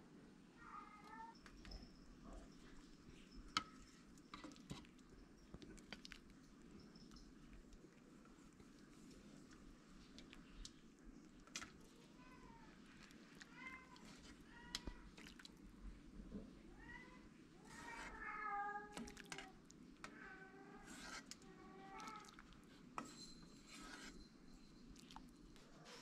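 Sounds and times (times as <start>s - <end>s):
faint clinks: 6.5s - 7.7s, 23.0s - 25.6s.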